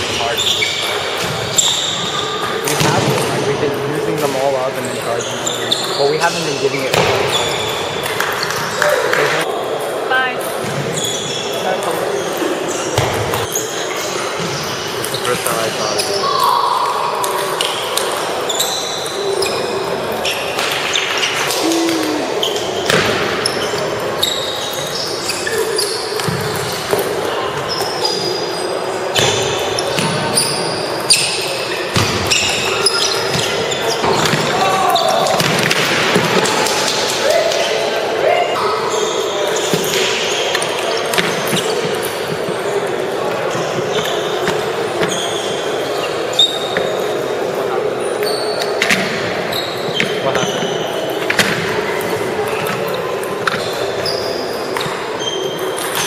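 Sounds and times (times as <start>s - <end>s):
sneakers squeaking on floor: 0.0s - 9.5s, 10.4s - 56.0s
murmuring voices: 21.4s - 24.2s.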